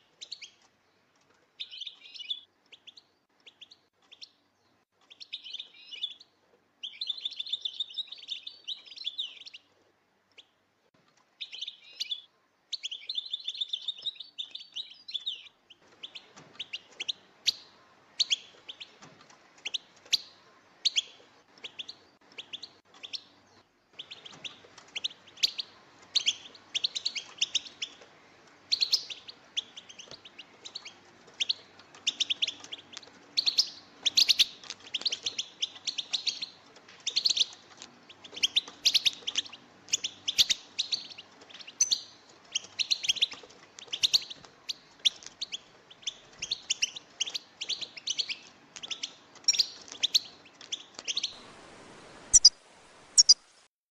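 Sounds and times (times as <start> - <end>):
finch twittering chirps: 6.8 - 9.7, 19.6 - 28.0, 28.6 - 51.4, 52.3 - 52.5, 53.2 - 53.4.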